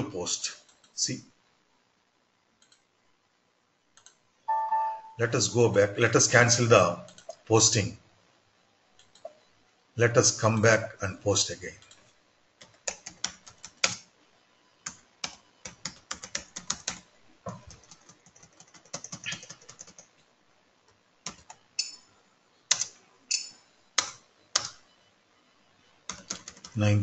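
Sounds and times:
computer keyboard typing: 12.6 - 14.1, 14.8 - 20.1, 21.2 - 21.9, 22.7 - 23.0, 24.0 - 24.8, 26.1 - 26.8.

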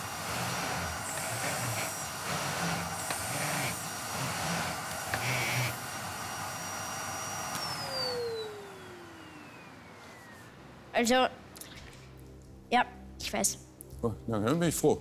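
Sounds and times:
vacuum cleaner whining: 0.0 - 10.9.

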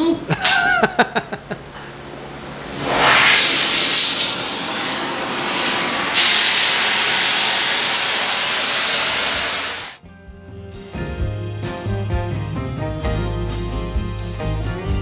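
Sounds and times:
cutting torch hissing: 2.6 - 10.0.

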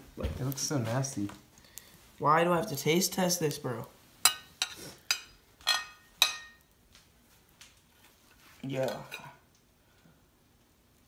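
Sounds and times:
cutlery clinking on ceramic plate: 4.3 - 6.6.

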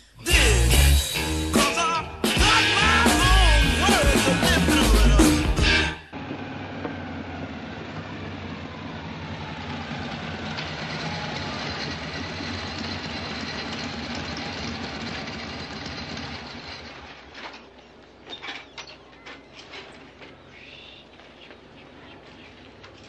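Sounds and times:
rock music: 0.0 - 6.1
motorcycle engines running: 2.4 - 23.0.

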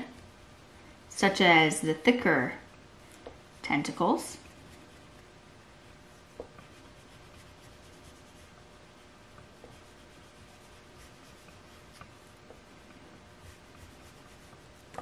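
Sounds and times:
oil pastel rubbing on paper: 3.6 - 5.2, 5.8 - 15.0.

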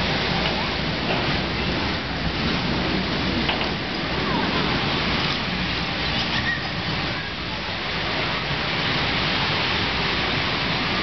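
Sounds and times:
bumper car ride rushing noise: 0.0 - 11.0.

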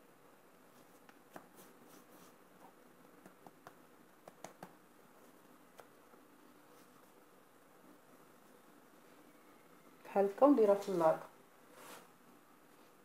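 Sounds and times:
room hiss: 0.0 - 13.0
hands tapping bread dough: 3.2 - 4.8.

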